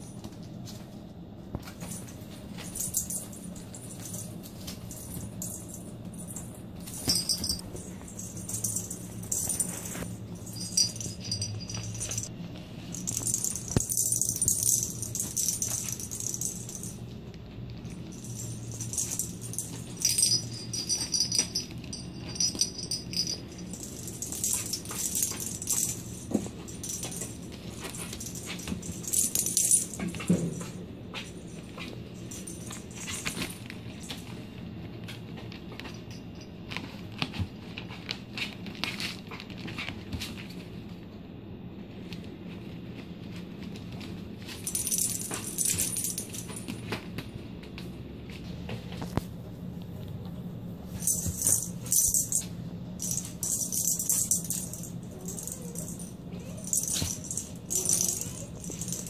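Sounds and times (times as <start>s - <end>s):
metal bell toy jingling: 1.8s - 12.3s, 12.9s - 17.1s, 17.8s - 34.3s, 44.5s - 46.8s, 51.0s - 59.0s.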